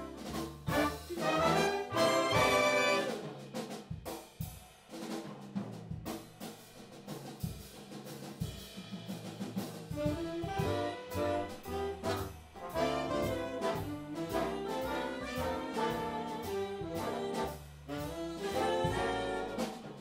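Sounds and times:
bass playing: 0.0 - 3.2, 10.0 - 20.0
brass chord: 0.0 - 3.3, 10.0 - 20.0
drum kit playing: 0.0 - 20.0.

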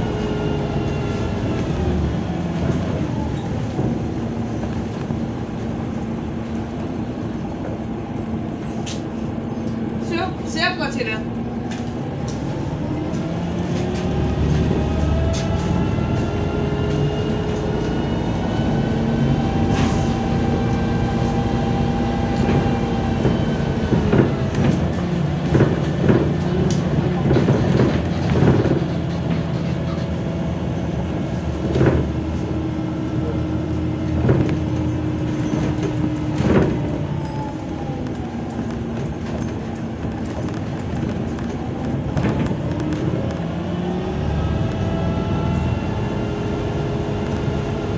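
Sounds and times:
bus engine and drivetrain whine: 0.0 - 47.9
bus body knocks and rattles: 2.4 - 6.2, 22.3 - 32.5, 34.0 - 43.5.

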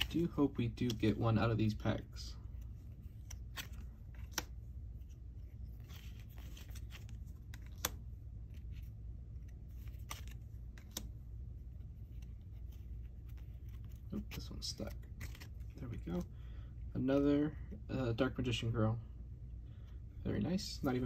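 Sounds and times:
cards sliding and rustling: 0.0 - 16.3
low steady hum: 0.0 - 21.0
card edges snapping: 3.1 - 4.6, 5.8 - 8.7, 9.4 - 11.2.

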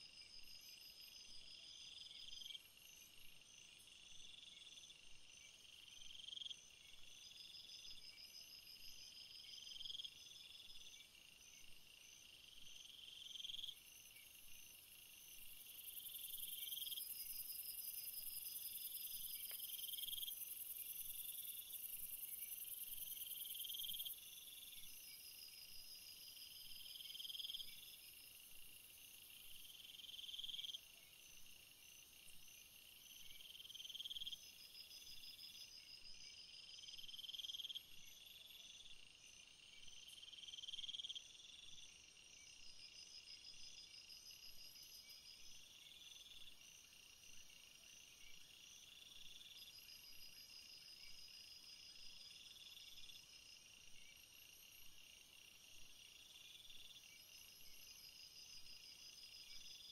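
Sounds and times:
crickets chirping: 0.0 - 59.9
insect trill: 0.0 - 59.9.

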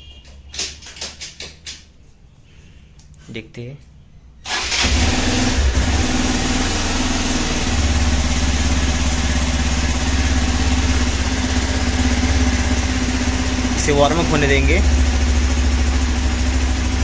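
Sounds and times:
motorcycle engine idling: 5.5 - 17.0.

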